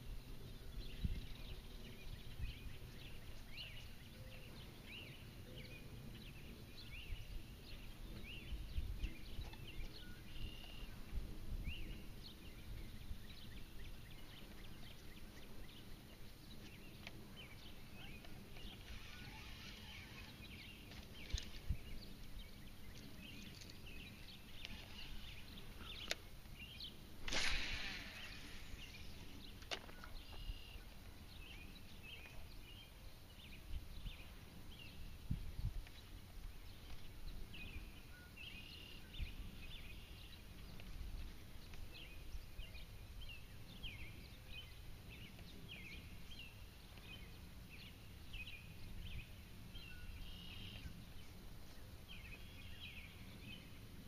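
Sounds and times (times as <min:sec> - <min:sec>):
small birds chirping: 0:00.0 - 0:54.0
fishing rod cast swish: 0:27.2 - 0:29.0.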